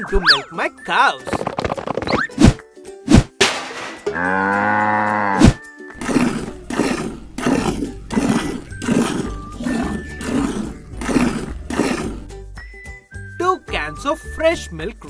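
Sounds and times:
cow mooing: 4.1s - 12.3s.

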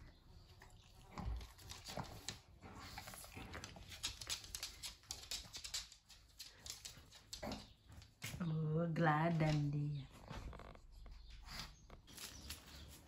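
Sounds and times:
claws clicking on wooden floor: 1.4s - 8.4s.

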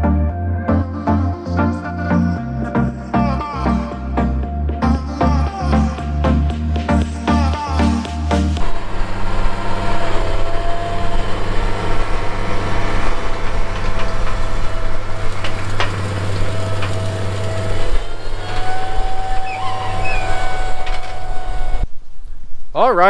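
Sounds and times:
tractor diesel engine under load: 6.1s - 21.8s
thin steady whine: 8.6s - 22.5s.

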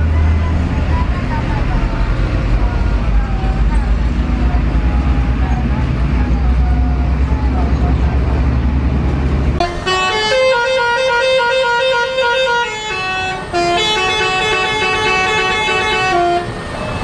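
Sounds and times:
low rumble of traffic: 0.0s - 17.0s
bus musical horn tune: 9.6s - 17.0s.

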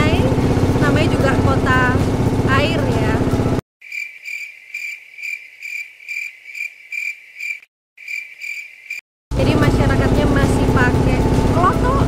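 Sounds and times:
cricket chirping: 3.8s - 9.0s.

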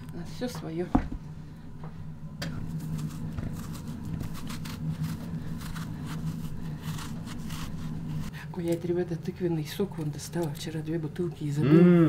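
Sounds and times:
steady low hum: 0.0s - 12.0s
knife scraping pumpkin skin: 2.7s - 8.3s.

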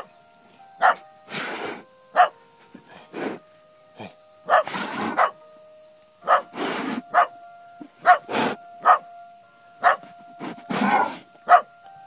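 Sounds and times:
dog barking: 0.8s - 1.0s, 2.2s - 2.4s, 4.5s - 5.4s, 6.2s - 6.5s, 7.1s - 7.3s, 8.0s - 9.0s, 9.8s - 10.1s, 10.8s - 11.7s
rough noisy dog sounds: 0.8s - 2.3s, 4.0s - 5.4s, 6.2s - 7.3s, 8.0s - 9.0s, 9.8s - 11.7s.

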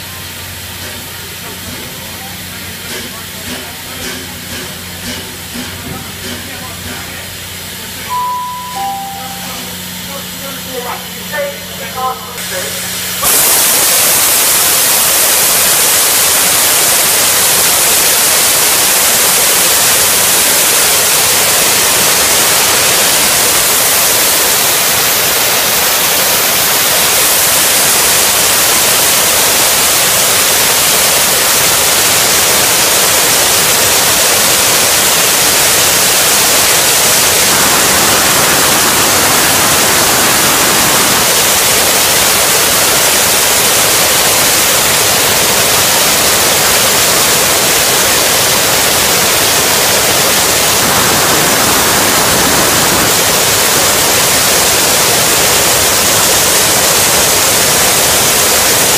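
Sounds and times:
steam hissing from locomotive: 0.0s - 58.9s.

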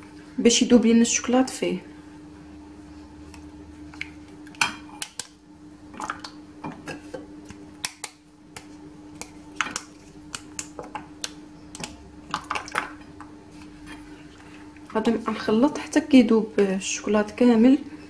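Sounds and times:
faint steady hum: 0.0s - 18.0s
chocolate snapping: 4.0s - 5.4s, 7.5s - 13.3s.

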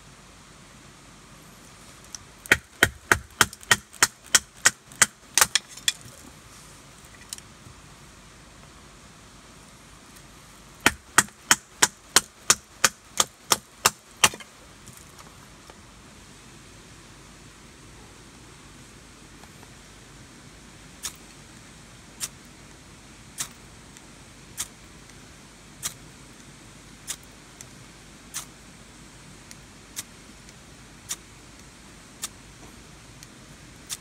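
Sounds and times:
knife chopping firewood: 2.4s - 6.1s, 10.9s - 14.5s.

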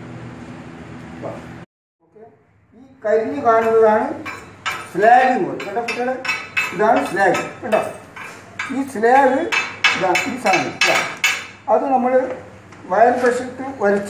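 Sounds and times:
chipping hammer tapping steel: 3.6s - 11.6s.

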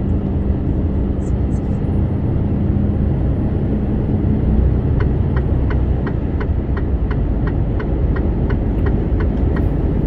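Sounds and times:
truck engine and road noise: 0.0s - 10.0s
turn signal ticking: 4.8s - 10.0s.

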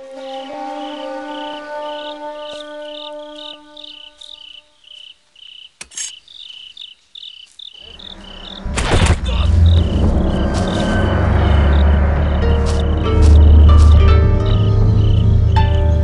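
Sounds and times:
crickets chirping: 0.0s - 16.0s
heavy low drone: 7.8s - 16.0s
deep rumble into whoosh hit: 8.4s - 13.7s.

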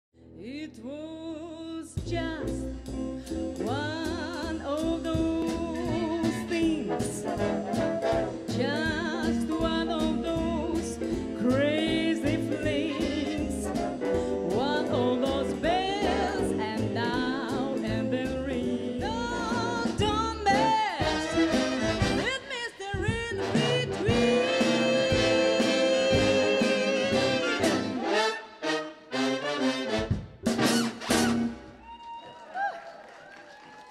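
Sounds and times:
band with double bass and drums: 1.5s - 28.3s, 29.7s - 31.9s
woman singing with vibrato: 3.6s - 7.3s, 8.5s - 21.4s, 22.2s - 27.7s.

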